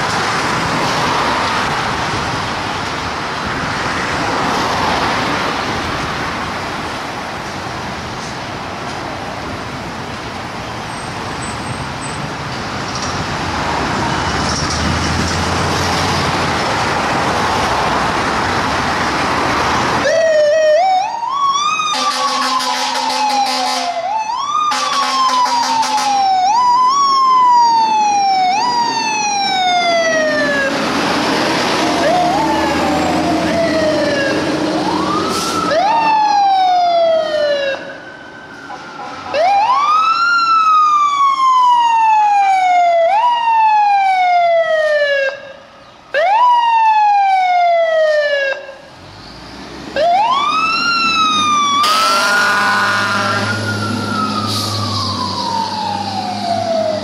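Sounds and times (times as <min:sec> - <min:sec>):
fire engine sirens: 0:00.0 - 0:57.0
air horn blast: 0:21.9 - 0:24.0, 0:24.7 - 0:26.2, 0:51.8 - 0:53.6.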